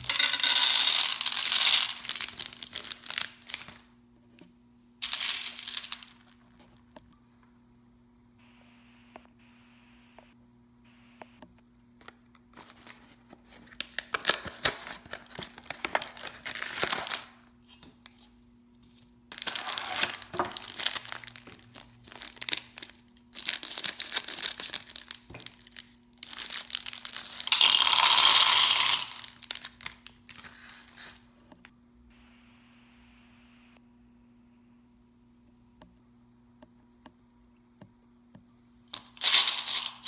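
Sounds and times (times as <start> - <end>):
candy box and bag crinkling: 0.0 - 3.9, 5.0 - 6.4, 12.5 - 17.4, 19.3 - 31.2, 38.9 - 40.0.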